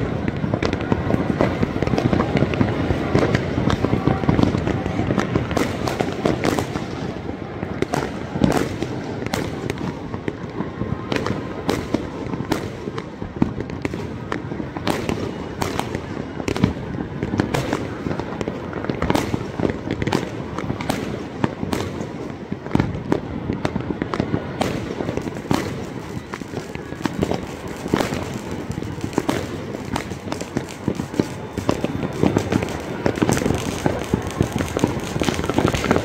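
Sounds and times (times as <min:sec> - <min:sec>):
distant fireworks explosions: 0:00.0 - 0:36.0
sharp firecracker bangs: 0:00.0 - 0:36.0.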